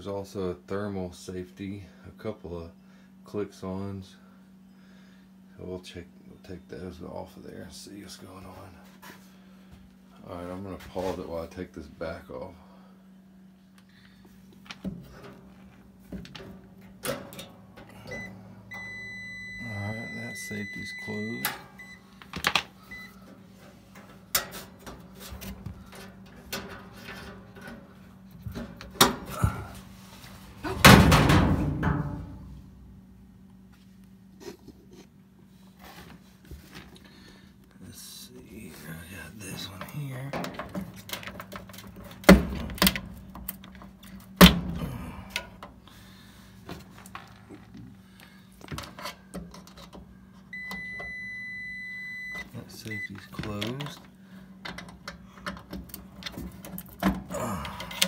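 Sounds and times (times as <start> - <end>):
multimeter continuity beep: 18.1 - 22.1, 22.9 - 23.2, 50.5 - 53.3.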